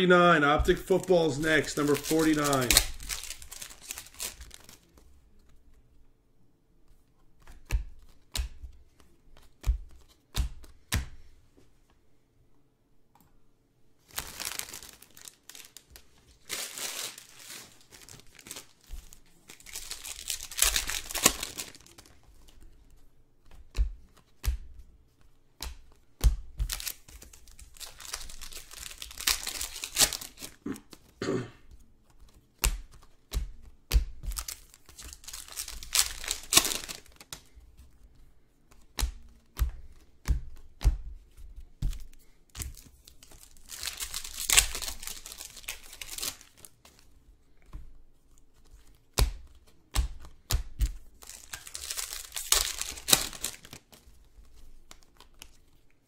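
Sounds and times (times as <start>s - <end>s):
cards and boxes clicking: 0.6s - 4.8s, 34.3s - 37.4s
foil wrappers tearing and crinkling: 0.6s - 4.9s, 14.1s - 22.2s, 26.6s - 30.6s, 34.3s - 37.2s, 42.7s - 46.7s, 51.2s - 54.0s.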